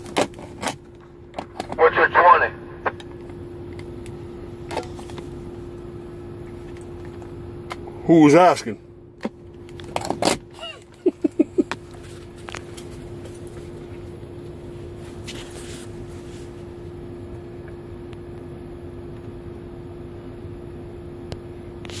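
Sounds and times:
steady hum in truck cab: 0.0 - 22.0.

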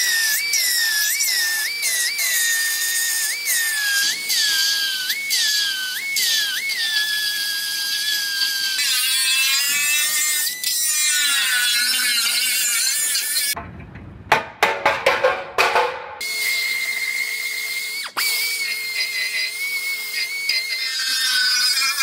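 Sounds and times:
pneumatic cutting tool whining: 0.0 - 13.6, 16.2 - 22.0
sharp metal knocks: 13.9 - 16.2
cut-off wheel grinding metal: 16.2 - 22.0.

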